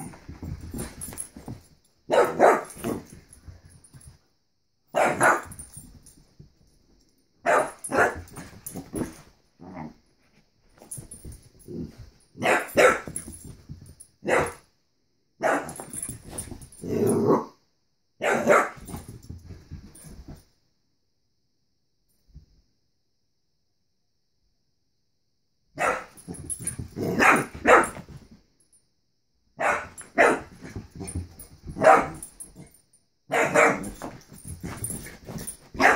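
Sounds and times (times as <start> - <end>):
dog barking: 2.1 - 3.0, 4.9 - 5.5, 7.4 - 8.2, 12.4 - 13.1, 14.2 - 14.6, 15.4 - 15.8, 18.2 - 18.8, 25.8 - 26.2, 27.1 - 28.0, 29.6 - 30.5, 31.8 - 32.2, 33.3 - 34.0.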